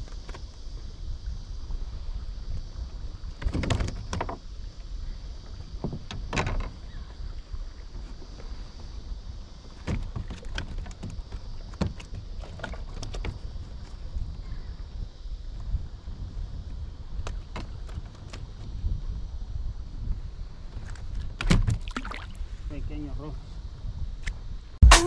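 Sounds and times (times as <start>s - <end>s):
knocks and clatters from hull: 3.4s - 4.4s, 9.8s - 13.4s.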